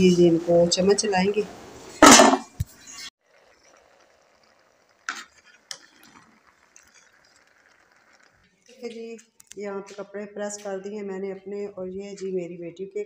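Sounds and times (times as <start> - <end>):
spoon scraping in pot: 2.7 - 8.4
faint frying sizzle: 3.2 - 9.2.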